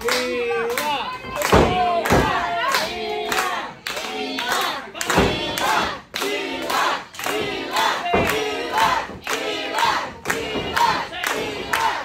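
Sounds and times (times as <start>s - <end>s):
crowd chanting rhythmically: 0.9s - 12.0s
low thuds: 7.3s - 11.2s.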